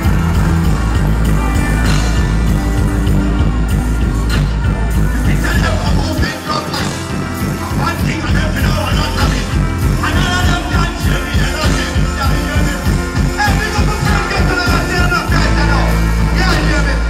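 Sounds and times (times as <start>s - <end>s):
loud dancehall music: 0.0s - 17.0s
deejay voice over beat: 4.8s - 17.0s.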